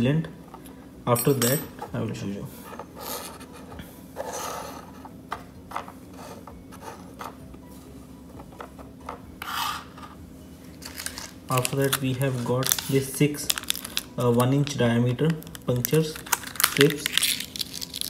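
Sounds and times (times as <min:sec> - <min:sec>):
objects scraping on tabletop: 0:02.6 - 0:07.4, 0:08.7 - 0:10.2.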